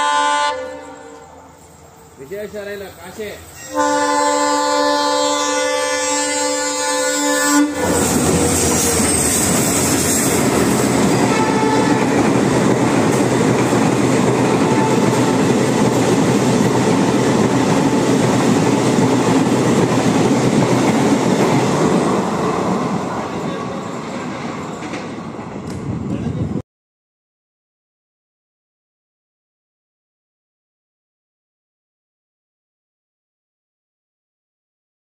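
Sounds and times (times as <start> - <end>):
train horn: 0.0 - 1.6, 3.6 - 9.1, 11.1 - 12.3, 14.6 - 15.4
train coaches rushing past on rails: 0.0 - 26.6.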